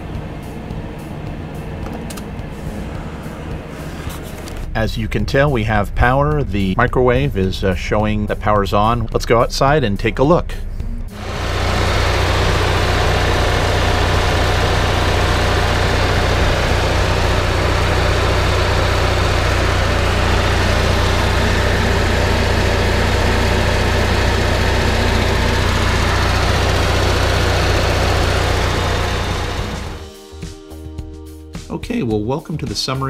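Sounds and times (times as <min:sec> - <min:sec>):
generator engine running: 0:00.0 - 0:04.8, 0:11.1 - 0:30.1.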